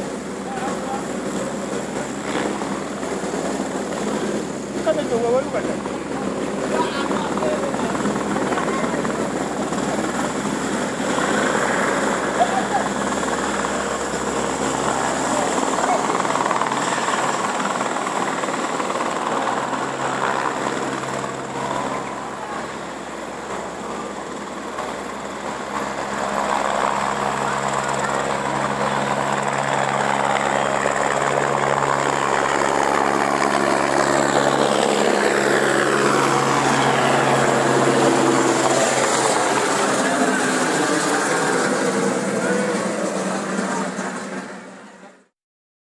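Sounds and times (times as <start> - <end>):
helicopter rotor and engine: 0.0 - 45.3.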